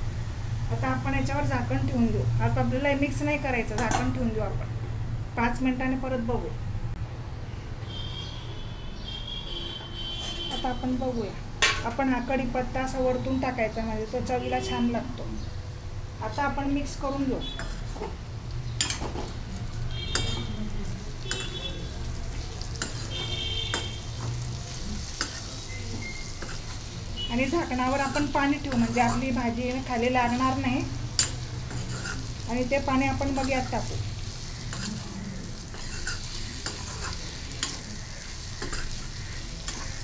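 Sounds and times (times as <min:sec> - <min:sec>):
frying sizzle: 0:16.3 - 0:40.0
metal spoon scraping steel pan: 0:17.5 - 0:18.0, 0:20.1 - 0:20.6, 0:21.2 - 0:21.7, 0:22.8 - 0:24.4, 0:25.0 - 0:29.8, 0:31.1 - 0:32.4, 0:33.3 - 0:40.0
spoon clinking against pan: 0:21.3 - 0:21.6, 0:31.2 - 0:32.2, 0:38.6 - 0:39.0.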